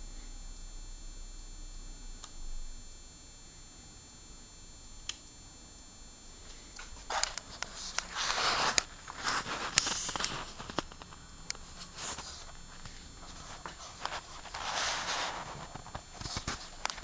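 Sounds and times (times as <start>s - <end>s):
rustling and scuffing with clicks: 6.6s - 17.0s.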